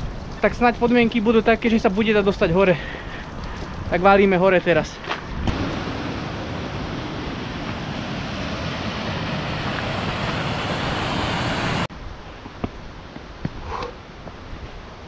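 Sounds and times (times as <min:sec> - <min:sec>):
faint footsteps on stone steps: 0:05.0 - 0:05.4, 0:12.2 - 0:14.8
waterfall rushing: 0:05.5 - 0:11.9.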